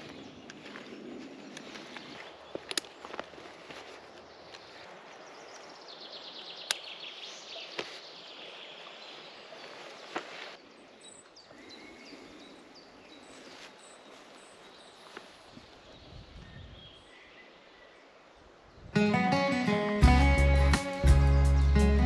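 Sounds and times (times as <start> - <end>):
backpack straps rustling and clicking: 0.0 - 4.9
birds singing: 0.0 - 19.1.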